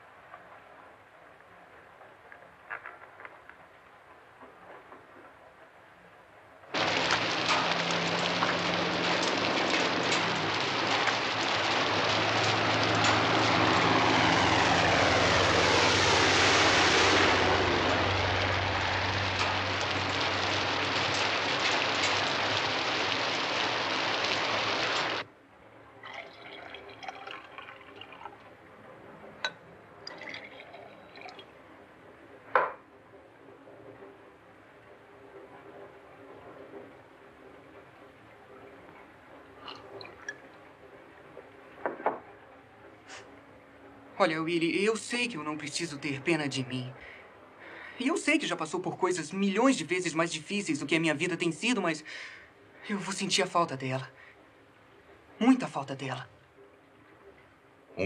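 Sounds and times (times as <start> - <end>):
loud steady rushing noise: 6.7 - 25.2
low hum: 6.7 - 26.0.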